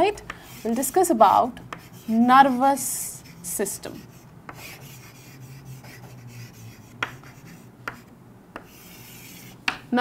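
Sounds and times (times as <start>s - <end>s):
chalk scratching on chalkboard: 0.4s - 1.1s, 1.7s - 9.8s
chalk tapping on board: 1.7s - 2.2s, 3.9s - 9.9s.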